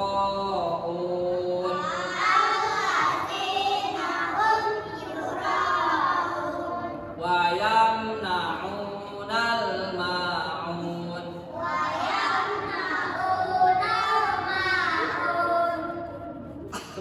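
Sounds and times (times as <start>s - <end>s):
children chanting in unison: 1.6s - 7.6s, 10.8s - 16.4s.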